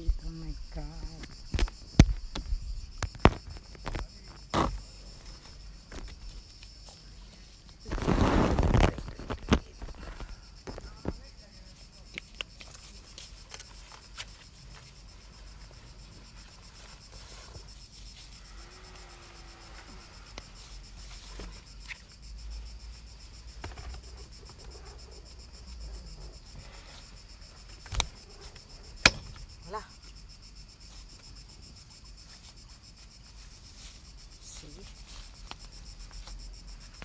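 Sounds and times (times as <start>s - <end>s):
insects chirring: 0.0s - 37.0s
sharp knocks: 29.0s - 29.4s.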